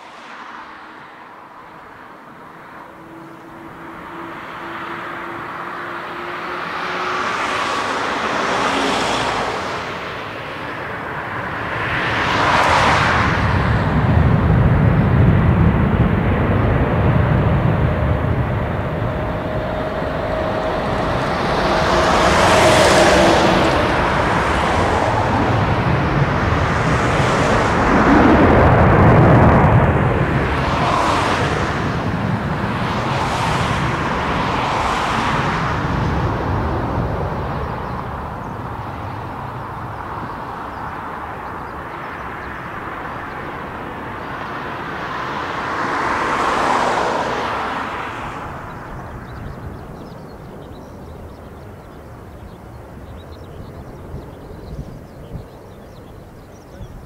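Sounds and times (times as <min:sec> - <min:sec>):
jet engine roar: 0:00.0 - 0:57.0
rising engine hum: 0:02.8 - 0:53.9
deep rumble: 0:13.3 - 0:40.5.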